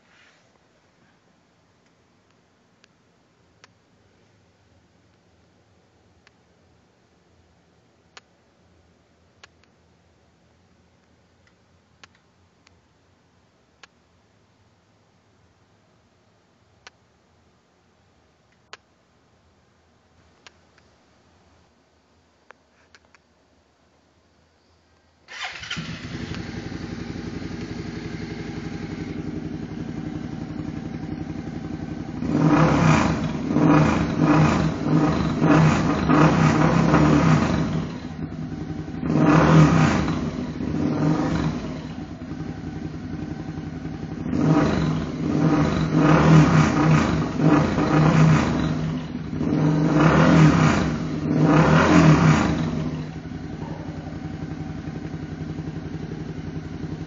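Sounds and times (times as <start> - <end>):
motorcycle engine idling and revving: 25.3 - 57.0.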